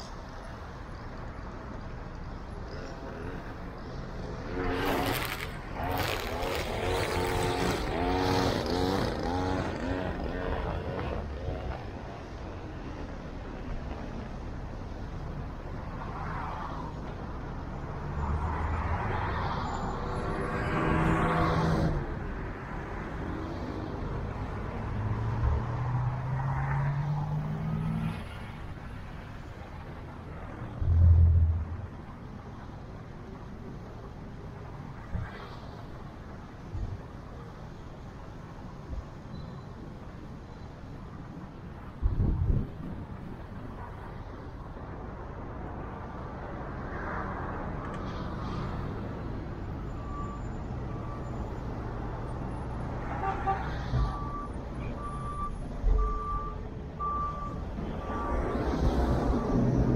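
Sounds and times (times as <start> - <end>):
road noise: 0.0 - 59.9
low engine hum: 30.5 - 32.0.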